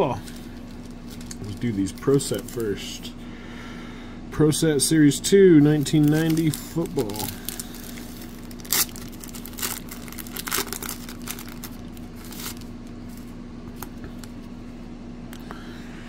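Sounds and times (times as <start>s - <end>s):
faint low hum: 0.0s - 16.0s
wrapper tearing and crinkling: 0.2s - 2.7s, 5.8s - 12.8s.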